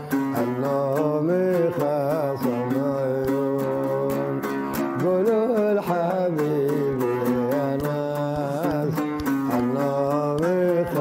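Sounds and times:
man singing: 0.0s - 11.0s
plucked oud: 0.0s - 11.0s.

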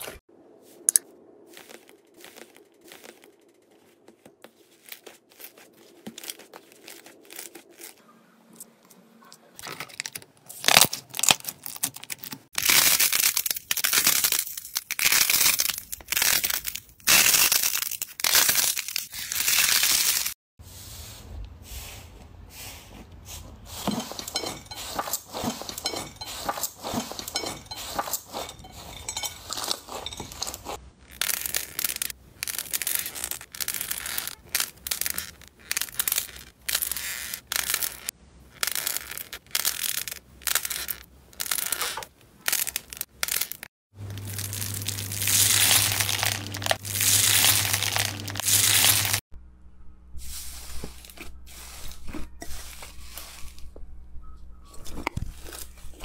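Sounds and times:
slime crackling and popping: 10.0s - 20.4s, 31.1s - 49.2s.

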